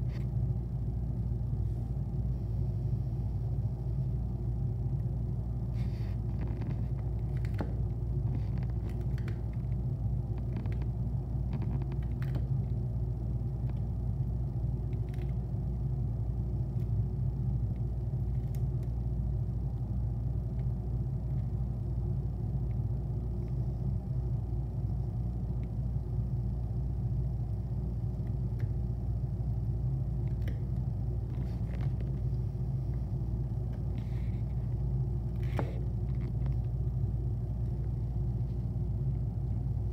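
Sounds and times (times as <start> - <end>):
low rumble: 0.0 - 39.9.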